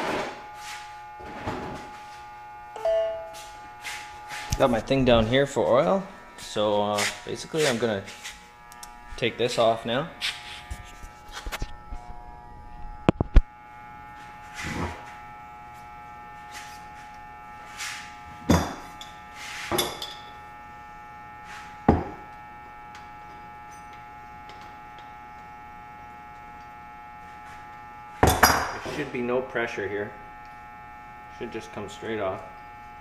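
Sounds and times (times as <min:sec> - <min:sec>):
steady electrical hum: 0:00.0 - 0:33.0
short scuffing sounds: 0:03.3 - 0:04.9, 0:06.4 - 0:08.5, 0:10.2 - 0:11.8.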